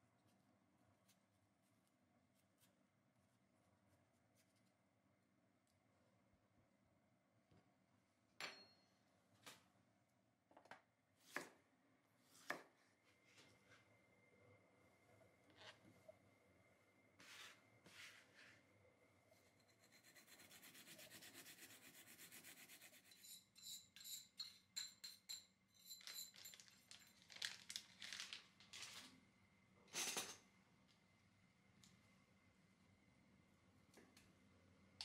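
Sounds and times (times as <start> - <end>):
spoon scraping a grater: 19.5 - 26.3
grating on a metal grater: 19.6 - 24.3.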